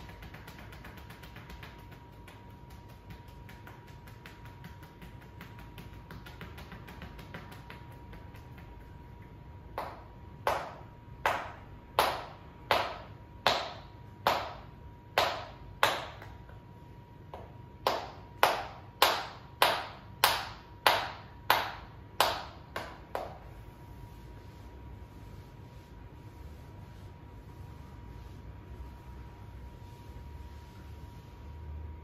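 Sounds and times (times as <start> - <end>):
open-palm slaps on shoulders: 0.0 - 16.6, 17.3 - 23.6.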